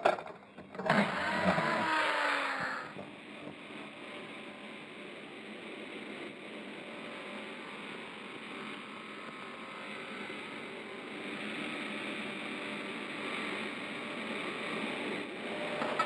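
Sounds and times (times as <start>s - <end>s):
circular saw blade whirring: 0.0s - 5.6s.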